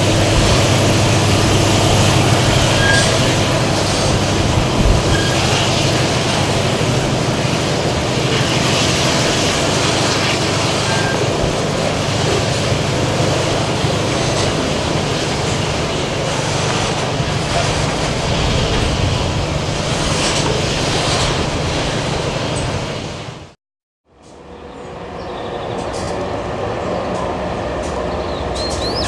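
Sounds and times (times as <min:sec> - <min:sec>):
wheels rolling on rails: 0:00.0 - 0:23.1
diesel locomotive engine hum: 0:00.0 - 0:29.0
high wheel squeaks: 0:01.1 - 0:06.4, 0:10.4 - 0:15.6, 0:27.8 - 0:29.0.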